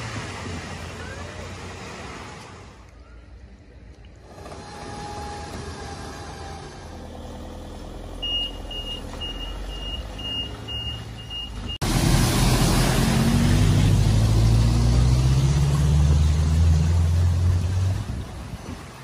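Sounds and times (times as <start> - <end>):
car driving through deep water: 0.0 - 2.8, 8.1 - 19.0
truck warning beeper: 8.2 - 11.8.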